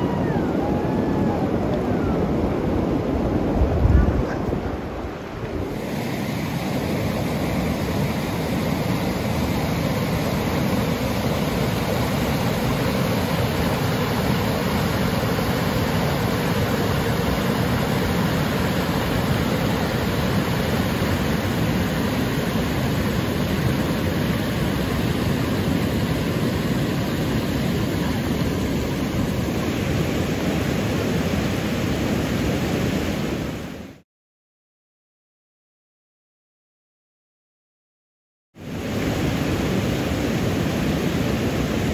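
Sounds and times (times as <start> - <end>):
river rapids rushing: 4.4 - 31.8.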